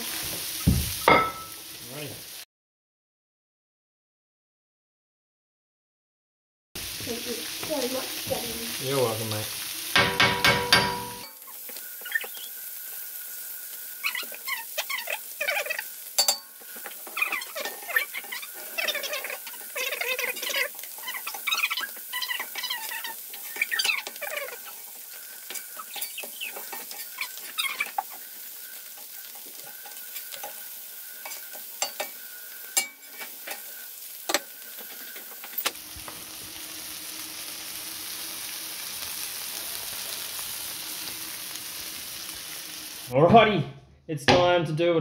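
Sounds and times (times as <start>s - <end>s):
fish sizzling on hotplate: 0.0s - 2.5s, 6.8s - 43.2s
metal spatula scraping and squeaking: 10.3s - 13.0s, 13.9s - 35.7s.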